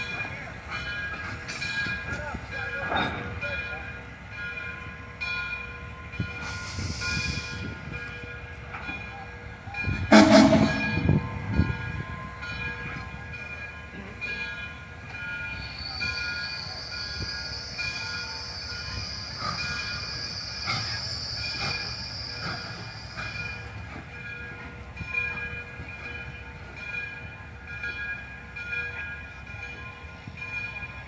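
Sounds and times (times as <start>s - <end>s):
steam locomotive exhaust chuffs: 4.9s - 31.0s
steam hiss: 6.2s - 8.1s, 15.5s - 24.0s.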